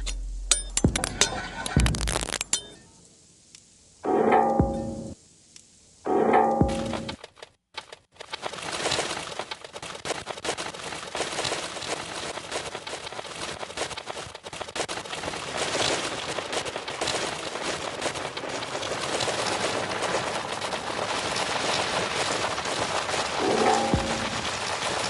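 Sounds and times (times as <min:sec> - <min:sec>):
rapid crackling clicks and pops: 0:00.0 - 0:02.8, 0:06.6 - 0:25.0.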